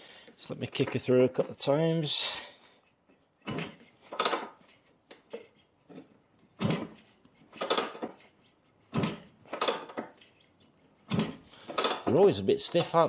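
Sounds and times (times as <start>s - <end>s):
scooter kickstart engine clatter: 6.6s - 8.3s, 8.9s - 10.4s, 11.1s - 12.2s.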